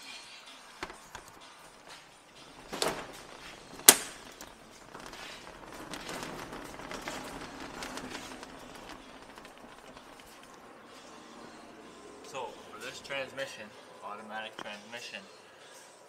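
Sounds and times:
fast rattling clicks: 2.5s - 10.7s.

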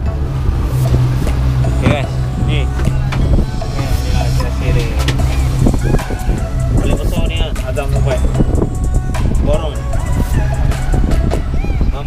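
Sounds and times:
background music with low bass: 0.0s - 12.0s.

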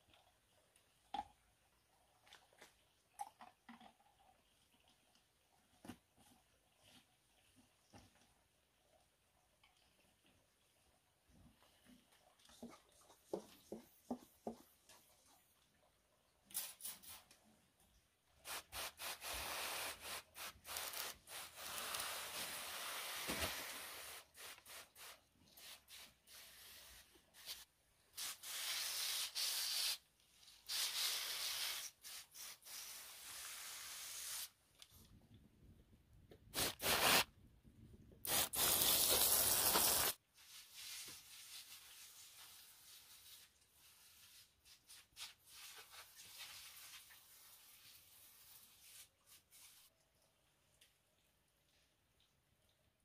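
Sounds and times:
hissing water spray: 38.2s - 40.2s.

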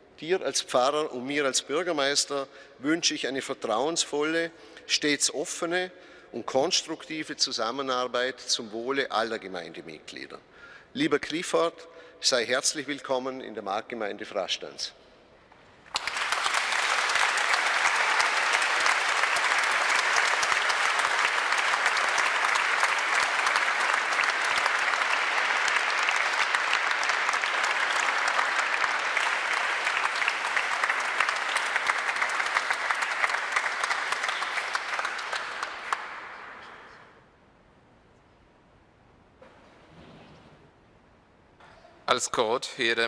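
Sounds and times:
audience clapping: 15.8s - 37.0s.

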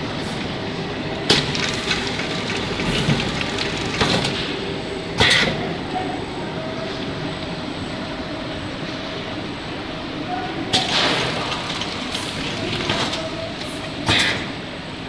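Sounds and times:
shrink wrapping machine running: 0.0s - 6.8s, 10.6s - 15.0s.

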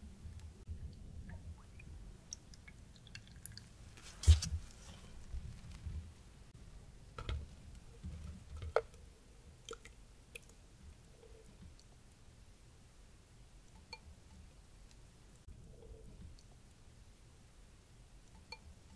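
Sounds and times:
batter squishing and dripping: 0.3s - 5.8s, 9.5s - 10.6s.

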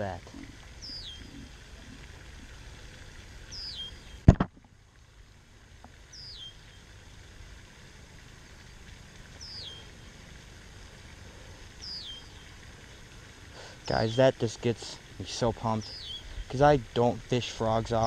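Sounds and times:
low outdoor background: 0.0s - 18.0s
camera handling thump: 4.3s - 4.5s.

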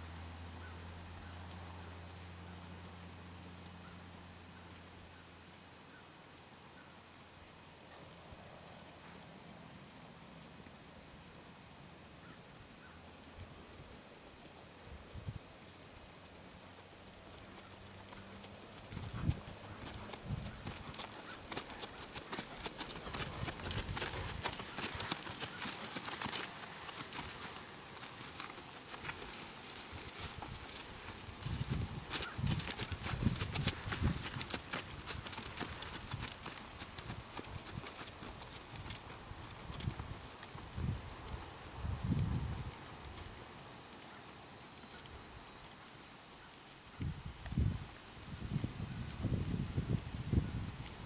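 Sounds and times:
horse hooves thudding on dirt: 13.1s - 46.0s.

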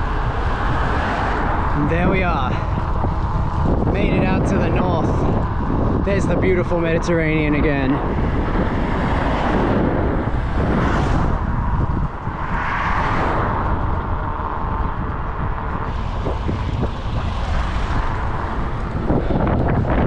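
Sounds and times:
road noise: 0.0s - 20.0s
wind buffeting microphone: 0.0s - 20.0s.

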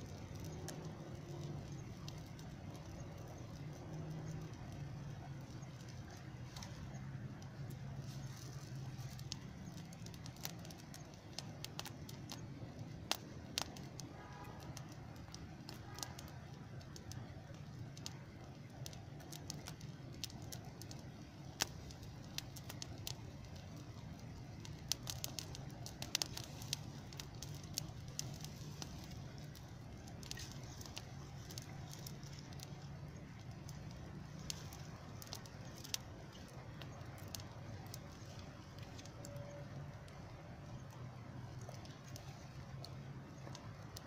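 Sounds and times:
fire crackling and popping: 0.0s - 44.0s.

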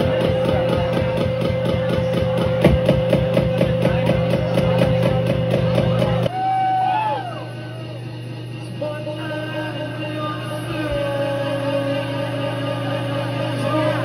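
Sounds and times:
fast drum beat: 0.0s - 6.3s
punk band playing: 0.0s - 6.3s.

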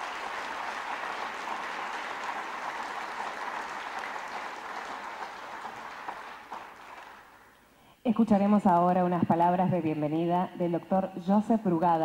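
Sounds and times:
large audience applauding: 0.0s - 7.4s.

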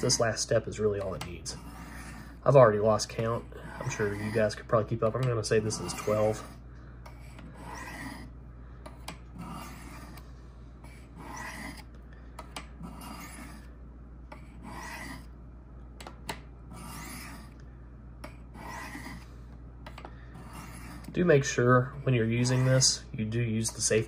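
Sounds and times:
knife blade scraping ceramic rods: 0.0s - 8.3s, 8.9s - 10.2s, 10.9s - 13.7s, 14.4s - 15.3s, 16.7s - 17.6s, 18.2s - 19.3s, 22.0s - 23.0s.

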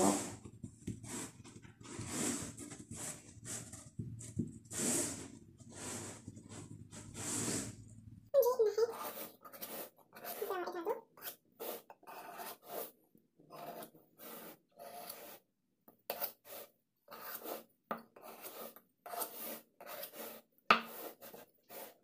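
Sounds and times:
knife scraping metal pan rim: 8.7s - 15.4s, 16.1s - 22.0s.

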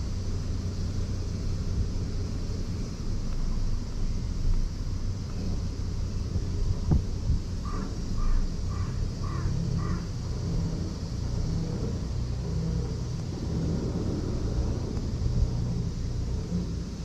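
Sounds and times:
steady low rumble: 0.0s - 17.0s
bird calling: 7.6s - 10.2s.

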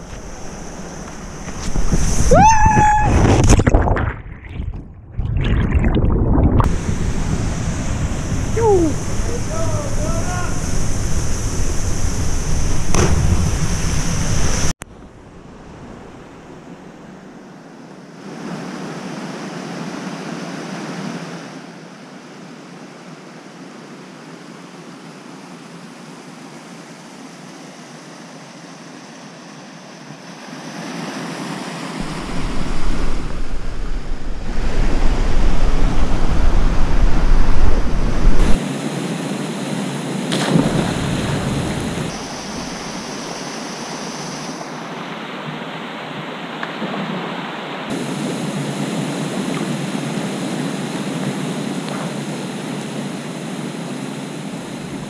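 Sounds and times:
waterfall rushing: 6.5s - 14.8s, 31.2s - 38.6s, 40.5s - 53.2s.

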